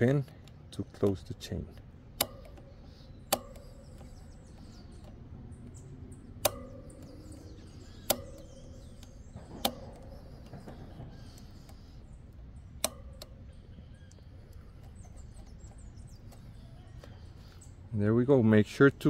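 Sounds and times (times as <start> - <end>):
pliers metallic clicks: 0.0 - 11.9.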